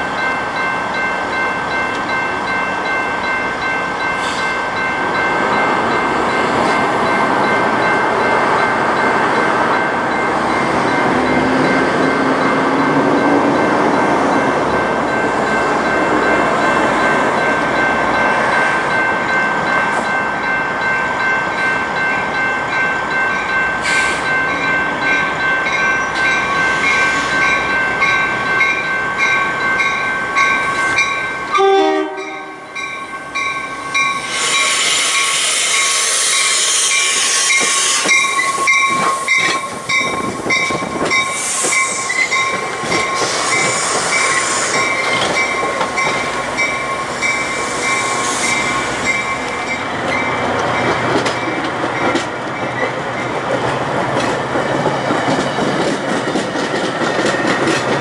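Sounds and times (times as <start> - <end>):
steady high tones: 0.0 - 53.4
train horn: 31.5 - 32.8
train wheels clattering: 32.8 - 58.0.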